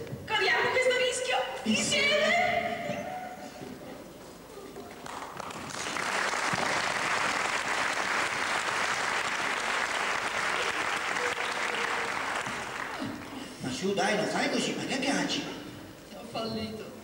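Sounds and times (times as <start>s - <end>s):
audience applauding: 4.8s - 13.4s.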